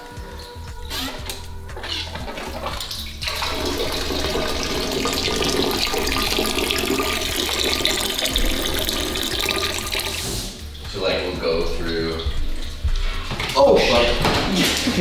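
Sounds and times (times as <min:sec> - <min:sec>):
cider splashing into metal pot: 0:02.3 - 0:11.0.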